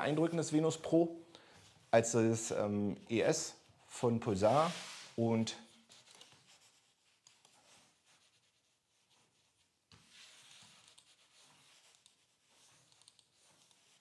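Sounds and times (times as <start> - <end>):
mouse sliding on mousepad: 4.5 - 5.2, 5.8 - 14.0.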